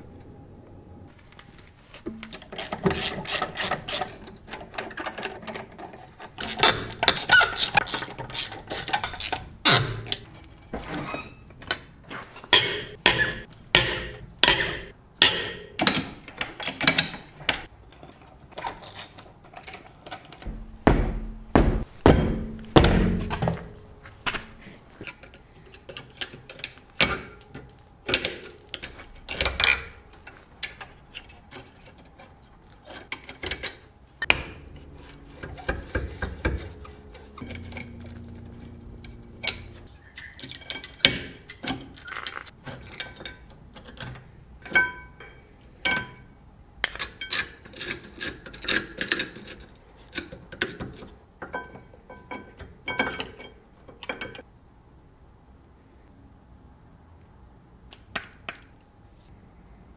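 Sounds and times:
heavy low thunks: 20.5s - 23.7s.

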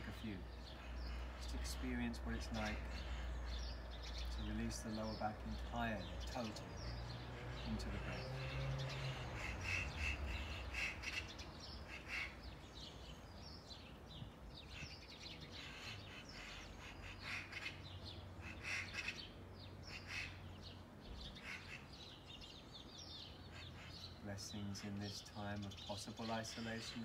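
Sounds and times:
crows cawing: 0.1s - 12.9s, 14.6s - 20.7s, 21.3s - 24.2s.

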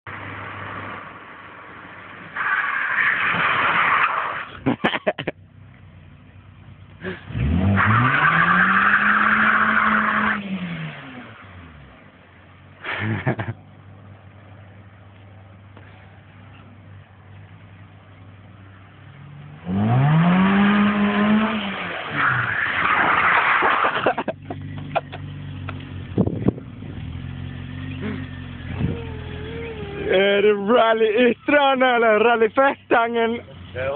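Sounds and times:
car engine revving: 5.5s - 12.8s, 15.8s - 33.9s.

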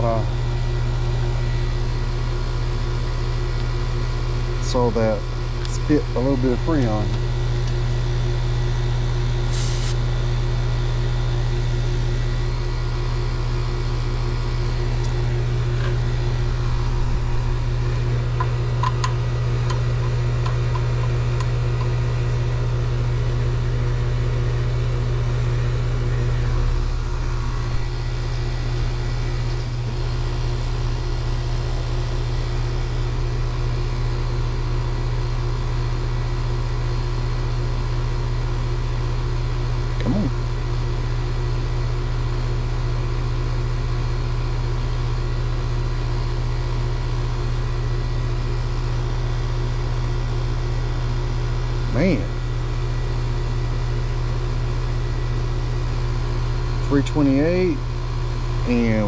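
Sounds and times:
condenser fan running: 0.0s - 59.0s
heat pump compressor hum: 0.0s - 59.0s.

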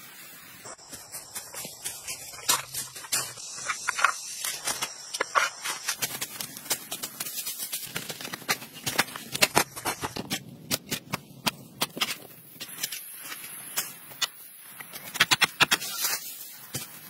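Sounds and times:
spade scraping through dry dirt: 14.9s - 17.0s.

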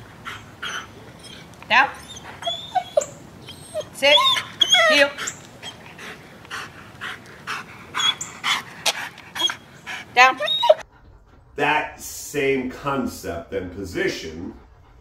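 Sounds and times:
dog panting: 0.0s - 12.0s, 14.0s - 15.0s
dog whining: 0.2s - 6.4s, 7.9s - 10.9s.

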